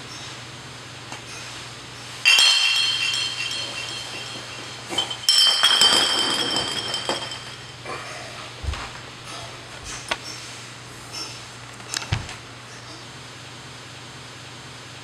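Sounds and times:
bright glassy chime: 2.3 - 7.8.

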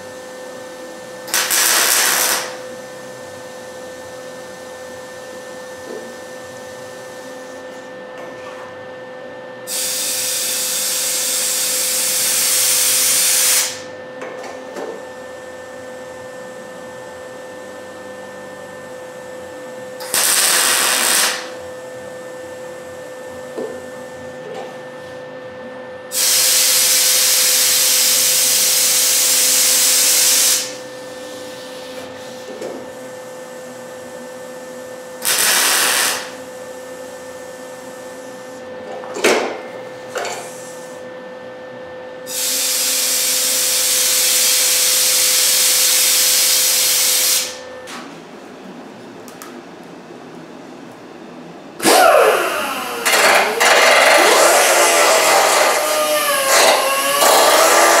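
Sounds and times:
welder arc crackling: 1.3 - 2.6, 20.0 - 21.5, 35.2 - 36.4.

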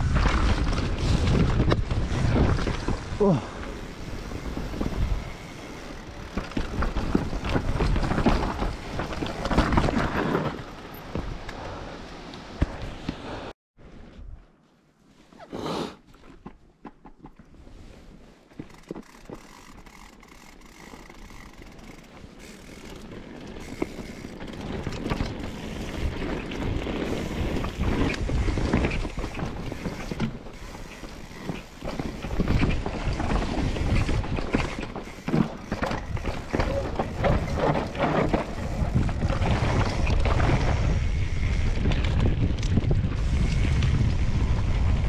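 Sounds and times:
bike rattling clicks: 0.0 - 11.6, 18.5 - 44.3
bike tyre noise: 0.0 - 13.5, 17.7 - 45.0
wind on microphone: 35.8 - 45.0.

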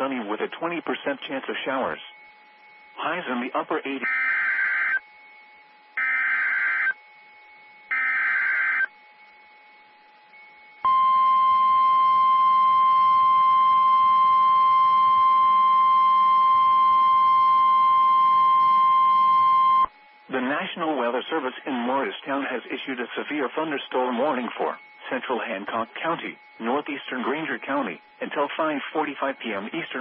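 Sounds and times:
steady alarm tone: 0.0 - 30.0
buzzy digital data bursts: 1.6 - 10.8, 19.9 - 30.0.

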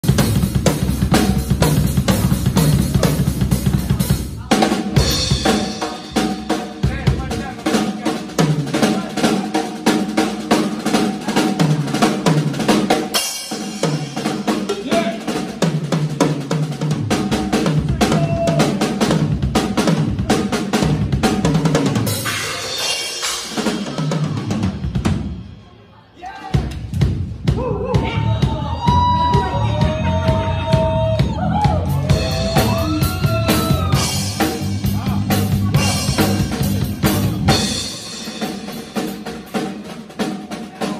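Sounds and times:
drum kit playing: 0.0 - 25.8, 26.4 - 40.9
cymbals: 0.0 - 25.9.

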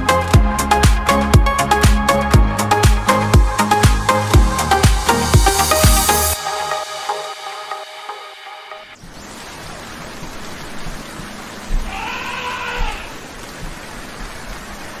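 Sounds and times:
music: 0.0 - 9.0
rain hiss: 2.7 - 15.0.

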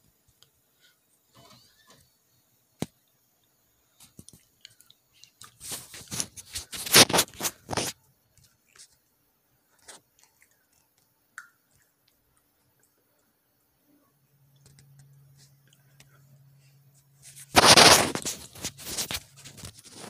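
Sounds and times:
close rustling and crackling: 3.8 - 9.0, 14.6 - 20.0.

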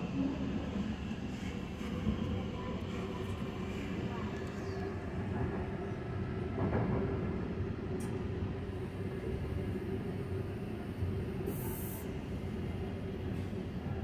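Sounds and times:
train running on rails: 0.0 - 14.0.

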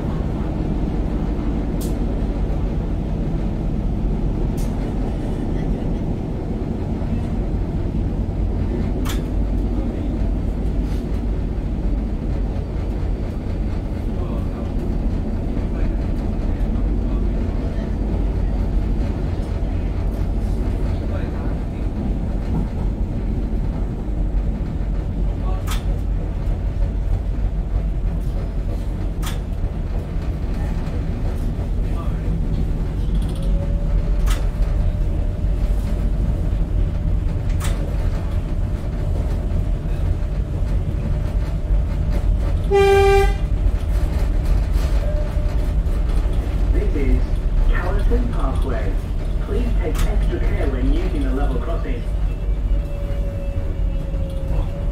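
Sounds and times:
wheels rumbling on rails: 0.0 - 54.9
train horn blast: 42.6 - 43.5.

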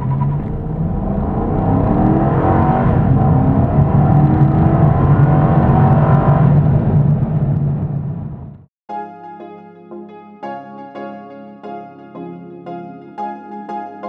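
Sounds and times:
car engine accelerating hard: 0.0 - 8.6.

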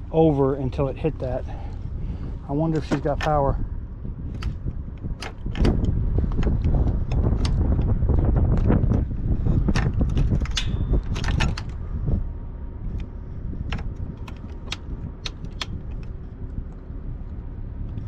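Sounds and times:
low rumble: 0.0 - 18.0
motorcycle key and switch clicks: 4.3 - 7.9, 13.7 - 16.2.

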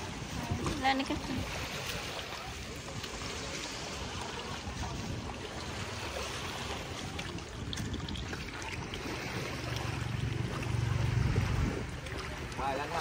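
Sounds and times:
wind on microphone: 0.0 - 12.6
small waves washing on shore: 0.0 - 13.0
low rumble: 7.4 - 12.5.

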